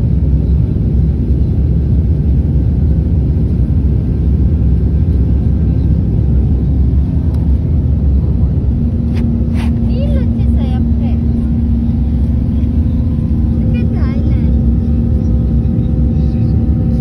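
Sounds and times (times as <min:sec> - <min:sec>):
airliner cabin engine rumble: 0:00.0 - 0:17.0.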